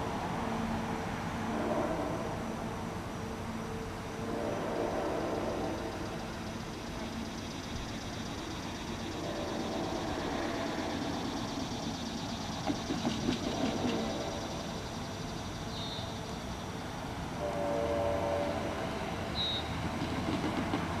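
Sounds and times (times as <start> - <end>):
train rumbling: 0.0 - 21.0
train horn: 1.4 - 2.8, 3.6 - 6.2, 13.8 - 14.6, 17.4 - 19.3.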